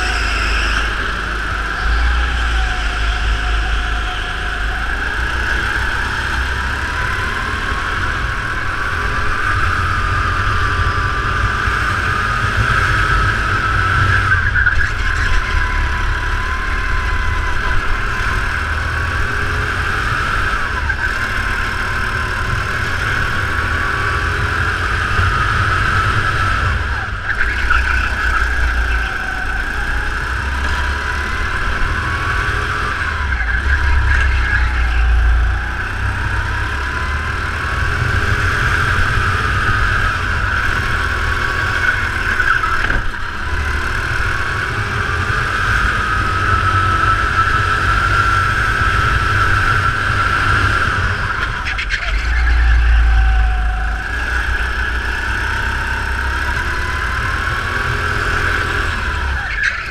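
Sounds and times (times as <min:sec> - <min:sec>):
go-kart engine: 0:00.0 - 0:59.9
rumble of vibration and wind: 0:00.0 - 0:59.9.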